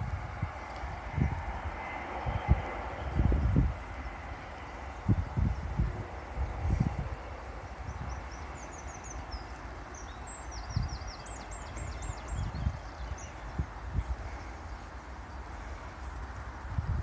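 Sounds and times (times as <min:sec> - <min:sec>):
steady hiss: 0:00.0 - 0:17.0
songbird chirping: 0:07.6 - 0:16.2.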